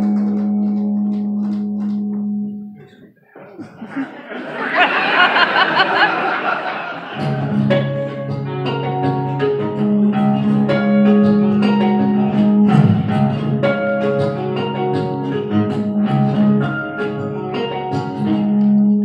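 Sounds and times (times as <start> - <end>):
electric guitar instrumental: 0.0 - 3.1, 7.1 - 19.0
audience cheering: 4.0 - 7.6.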